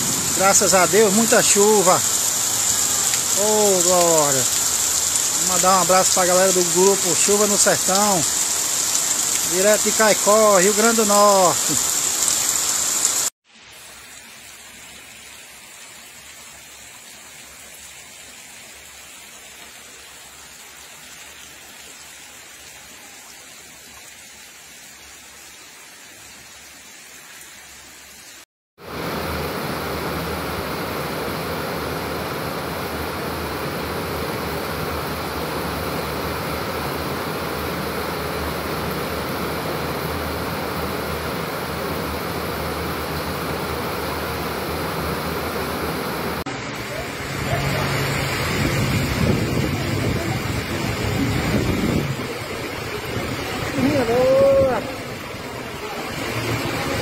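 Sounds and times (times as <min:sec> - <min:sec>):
water pouring onto a tank: 0:00.0 - 0:13.2
heavy rain rushing: 0:00.0 - 0:26.4, 0:27.3 - 0:57.0
rain hissing: 0:00.0 - 0:57.0.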